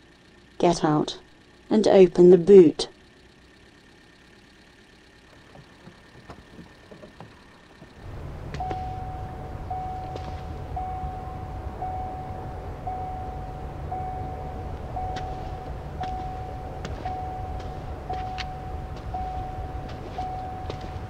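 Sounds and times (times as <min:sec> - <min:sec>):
car engine idling: 0:00.0 - 0:21.0
car door warning chime: 0:05.4 - 0:21.0.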